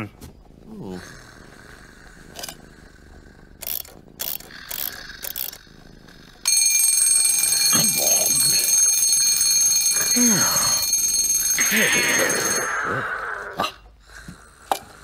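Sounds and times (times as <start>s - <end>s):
alarm clock clicks and rattles: 6.4s - 10.2s
alarm clock bell ringing: 6.4s - 13.2s.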